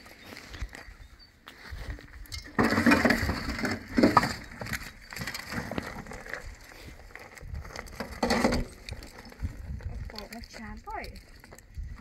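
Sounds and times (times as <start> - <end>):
dirt dropping into metal wheelbarrow: 1.9 - 6.4, 7.9 - 9.2.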